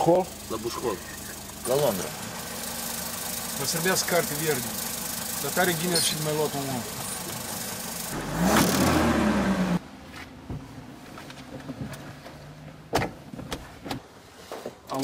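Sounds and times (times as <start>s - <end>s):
car engine revving: 0.0s - 9.8s.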